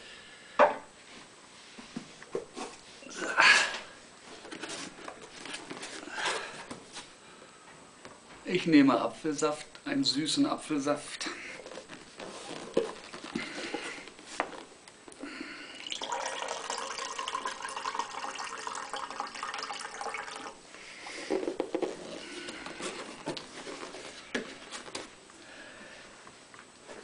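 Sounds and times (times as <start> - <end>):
juice pouring into glass mug: 15.7 - 20.6.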